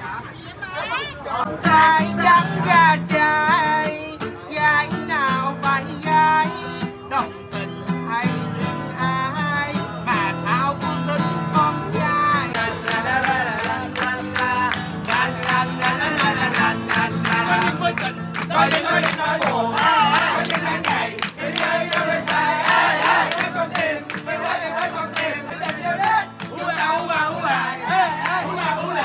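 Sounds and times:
group clapping along: 0:12.4 - 0:29.0.

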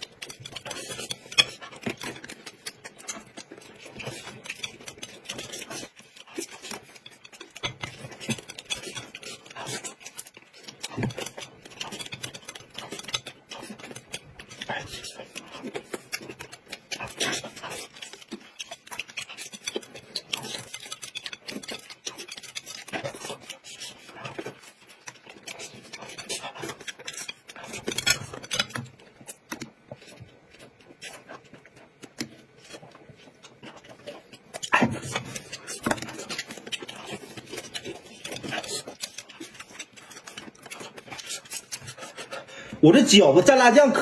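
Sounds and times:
chopsticks clicking on plates: 0:00.0 - 0:31.2
people chewing food: 0:00.0 - 0:44.0.

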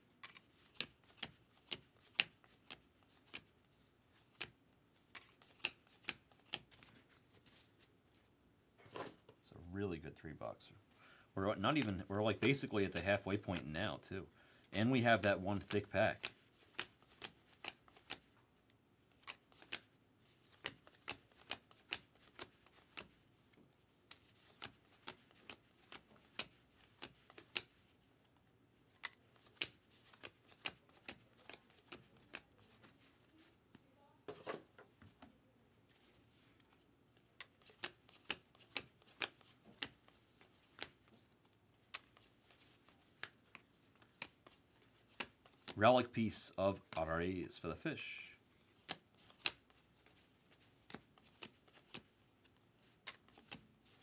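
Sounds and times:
cards being flipped: 0:00.2 - 0:03.5, 0:04.1 - 0:07.9, 0:14.7 - 0:18.3, 0:19.1 - 0:33.5, 0:36.0 - 0:47.0, 0:48.6 - 0:54.0.

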